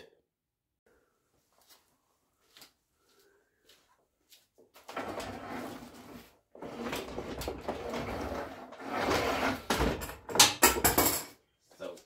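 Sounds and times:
wooden carriage sliding on rails: 4.9 - 10.0.

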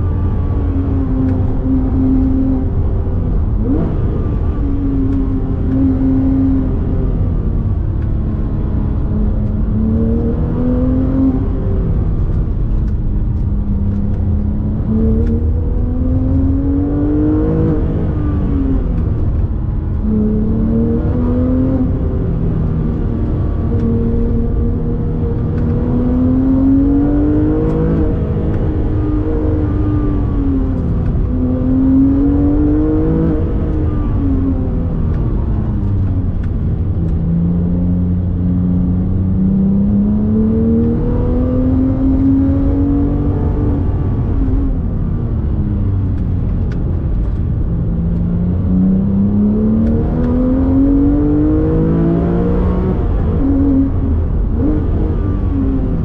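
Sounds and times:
car engine revving through gears: 0.0 - 56.0
low road rumble: 0.0 - 56.0.

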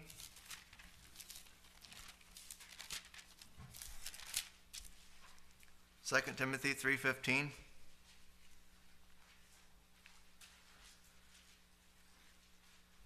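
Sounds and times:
thin pages turning: 0.1 - 5.0.

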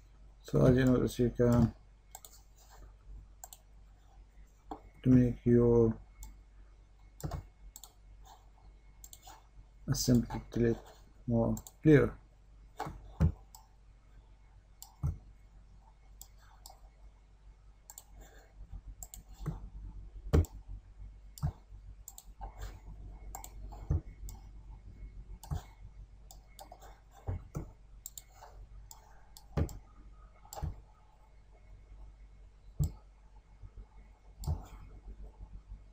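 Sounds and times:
steady low hum: 0.0 - 35.9
computer mouse clicking: 1.5 - 2.8, 3.4 - 3.7, 7.2 - 8.4, 9.0 - 9.4, 17.9 - 18.3, 19.0 - 19.6, 21.4 - 22.7, 23.3 - 24.5, 26.3 - 29.8.

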